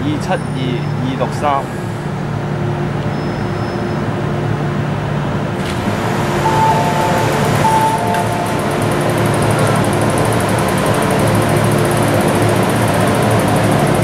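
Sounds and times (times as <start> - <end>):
train drawing to a stop: 5.6 - 14.0
two-tone electronic chime: 6.4 - 9.8.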